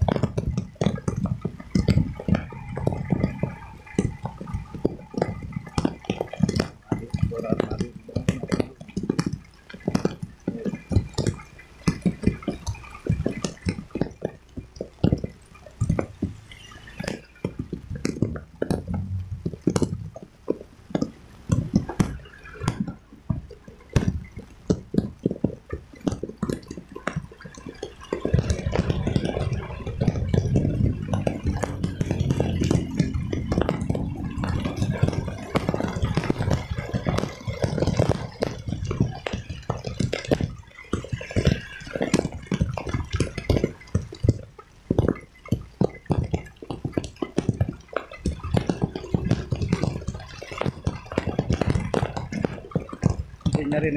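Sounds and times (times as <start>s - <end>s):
raindrops tapping microphone: 0.0s - 53.9s
wind and road noise rumble: 0.0s - 53.9s.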